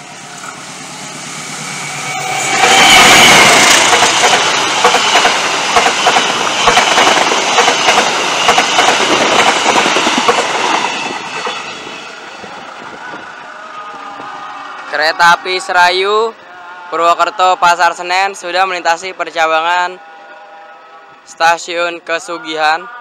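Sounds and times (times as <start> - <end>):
diesel locomotive passing: 0.0 - 22.1
train wheels clickety-clack: 2.5 - 11.8.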